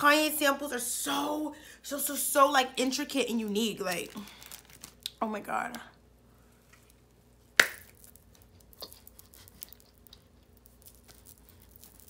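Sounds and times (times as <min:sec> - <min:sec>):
faint chewing clicks: 0:08.2 - 0:12.0.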